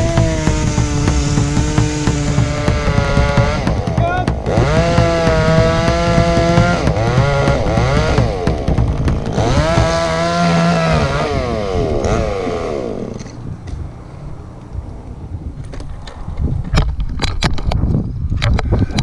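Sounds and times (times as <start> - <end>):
chainsaw running at high revs: 0.0 - 13.3.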